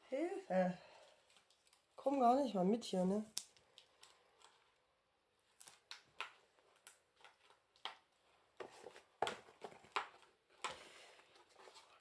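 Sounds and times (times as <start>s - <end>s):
cardboard and paper rustling: 5.4s - 12.0s.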